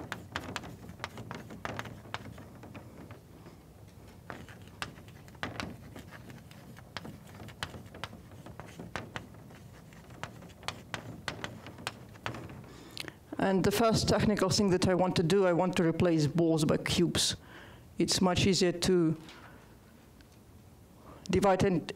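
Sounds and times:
chalk tapping on blackboard: 0:00.0 - 0:03.2, 0:04.2 - 0:12.7.

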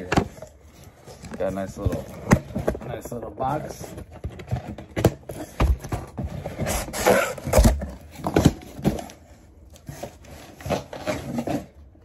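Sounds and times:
cardboard scraping and rustling: 0:00.0 - 0:12.0
cardboard box knocks and thumps: 0:03.8 - 0:09.3.

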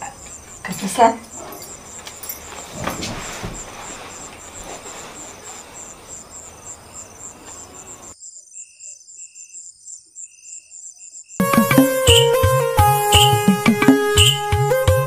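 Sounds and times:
background hiss: 0:00.0 - 0:08.5
crickets chirping: 0:00.0 - 0:12.4, 0:14.2 - 0:14.5
music: 0:11.4 - 0:15.0
lower chirping: 0:13.1 - 0:14.7.

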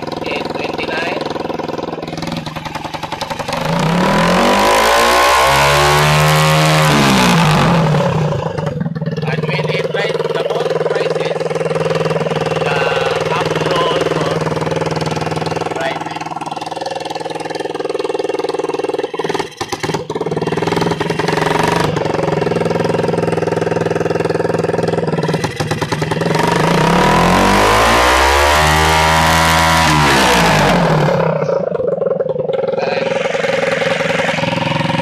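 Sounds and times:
small motorcycle engine revving: 0:00.0 - 0:35.0.

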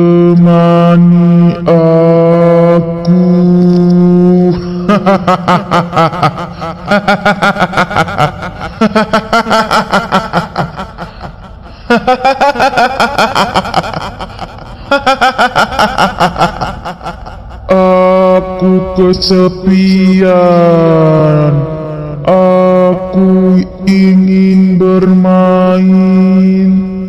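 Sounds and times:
high-pitched cackling laughter: 0:04.5 - 0:18.0.

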